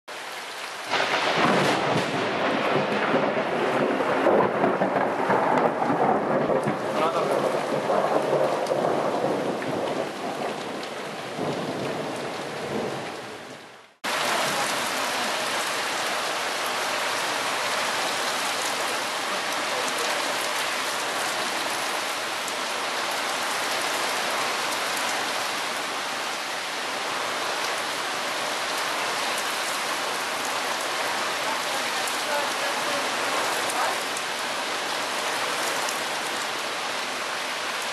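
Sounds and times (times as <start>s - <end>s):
heavy rain: 0.1s - 37.9s
loud thunder rumbling: 0.9s - 13.1s.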